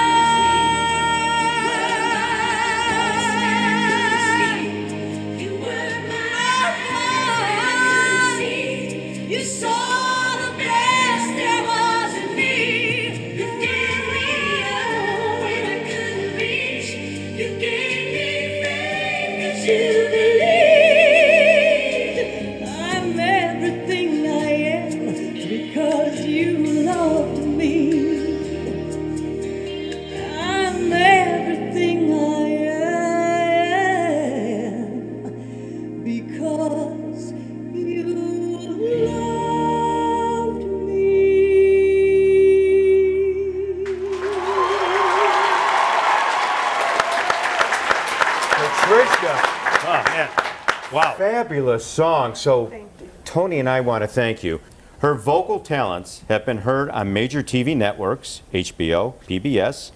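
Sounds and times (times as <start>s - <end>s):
woman singing with vibrato: 0.0s - 35.4s, 36.0s - 46.5s.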